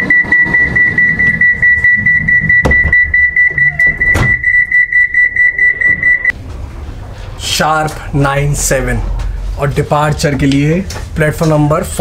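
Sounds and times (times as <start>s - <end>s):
train door warning beeping: 0.0s - 6.3s.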